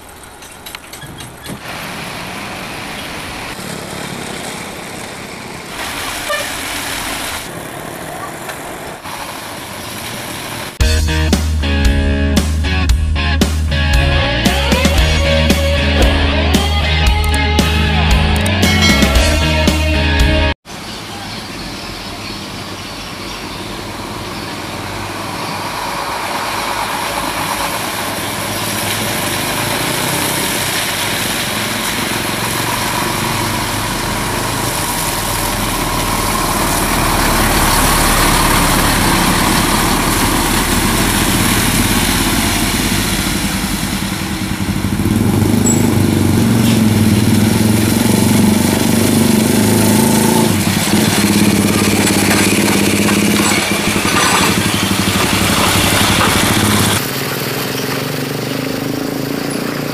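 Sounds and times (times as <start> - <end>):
tyre noise on dirt road: 0.0 - 11.1, 20.6 - 59.9
diesel truck engine: 0.0 - 59.9.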